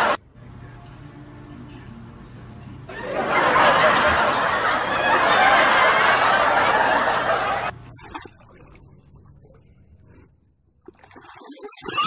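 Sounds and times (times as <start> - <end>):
loud laughter: 2.9 - 7.7.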